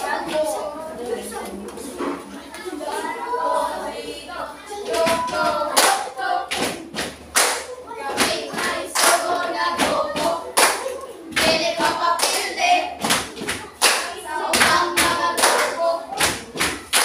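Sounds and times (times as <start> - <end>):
children singing together: 0.0 - 17.0
hand claps: 5.0 - 17.0.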